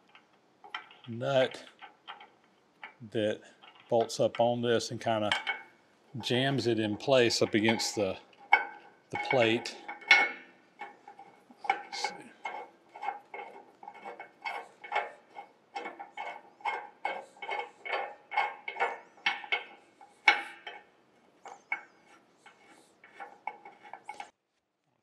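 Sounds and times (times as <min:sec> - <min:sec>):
wrench clinking on steel nut: 0:07.4 - 0:24.3.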